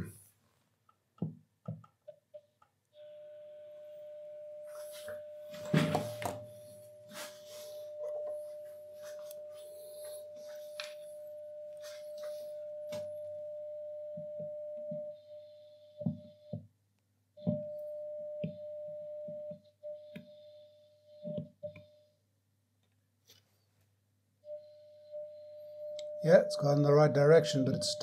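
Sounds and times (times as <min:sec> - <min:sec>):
radio loudspeaker test tone: 0:26.2 - 0:28.0.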